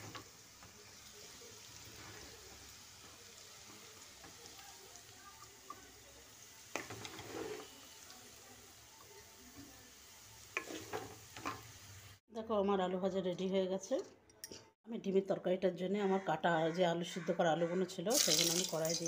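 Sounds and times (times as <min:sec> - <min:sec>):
oil sizzling with frying potatoes: 0:00.0 - 0:12.2, 0:18.1 - 0:19.0.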